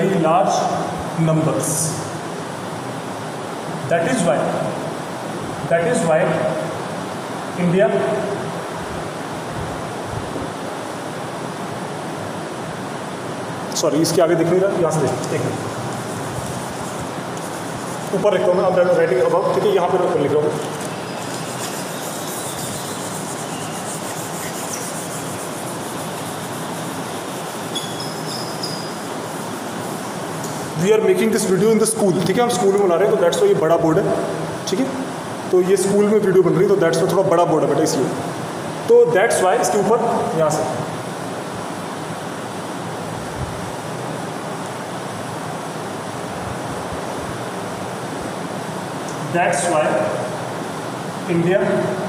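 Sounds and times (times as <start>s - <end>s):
background hiss: 0.0s - 52.0s
steady rushing room noise: 0.0s - 52.0s
faint squeaks: 27.6s - 29.0s.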